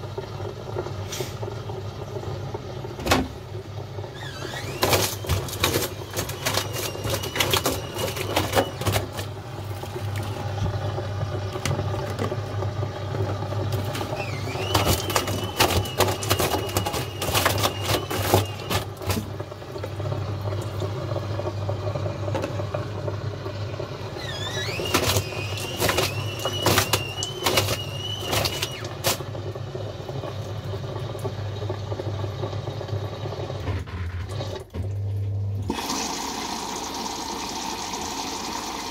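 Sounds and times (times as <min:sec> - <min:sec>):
washing machine motor whine: 0:00.0 - 0:38.9
wet laundry knocking in drum: 0:13.7 - 0:20.0.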